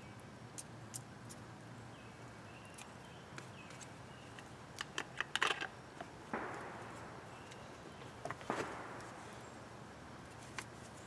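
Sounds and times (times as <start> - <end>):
bird chirping: 1.3 - 4.6, 5.7 - 9.8.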